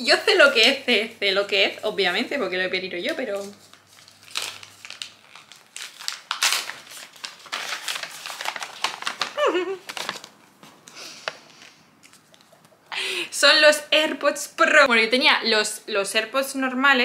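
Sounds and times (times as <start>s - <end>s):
packaging crinkling and rustling: 1.5s - 12.6s.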